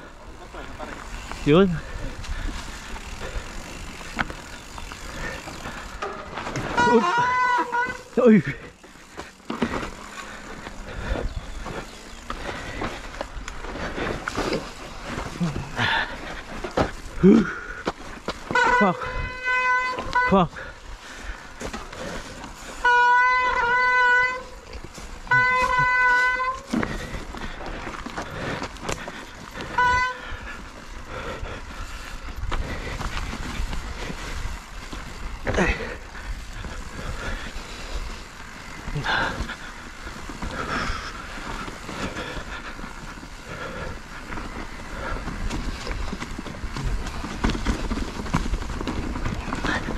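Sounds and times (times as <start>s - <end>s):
mountain bike rattling on trail: 0.0s - 49.9s
short horn-like tone: 6.6s - 8.2s, 18.5s - 20.5s, 22.8s - 24.6s, 25.2s - 26.7s, 29.7s - 30.3s.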